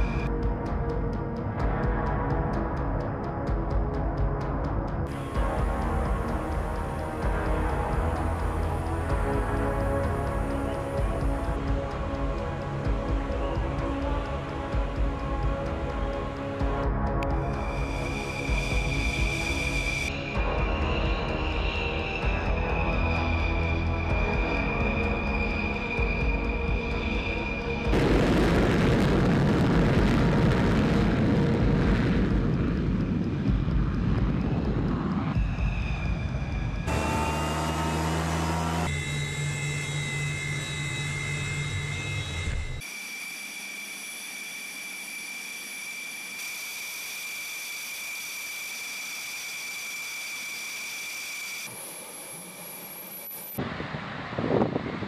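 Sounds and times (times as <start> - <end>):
jet engine roar: 17.6 - 55.0.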